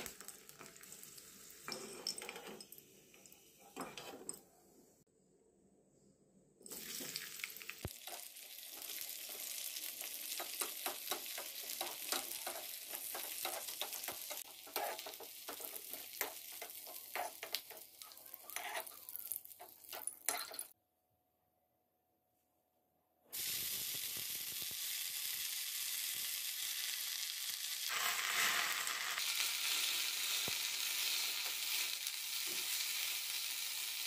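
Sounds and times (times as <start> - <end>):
onion sizzling in hot oil: 0.0 - 2.2, 6.7 - 20.4, 23.3 - 34.0
ladle scraping pan: 13.2 - 19.0.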